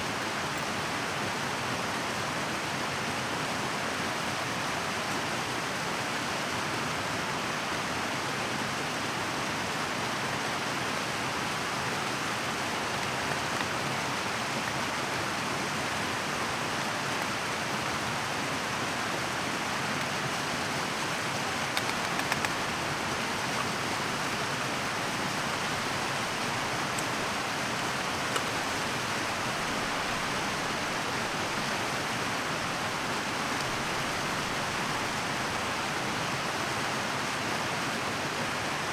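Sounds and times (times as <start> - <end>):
mountain stream rushing: 0.0 - 38.9
faint clicks: 21.7 - 22.8.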